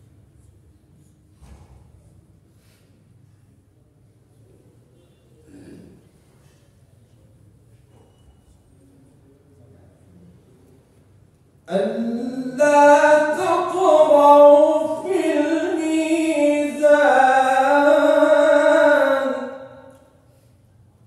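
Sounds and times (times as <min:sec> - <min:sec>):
man chanting recitation: 0:11.6 - 0:20.2.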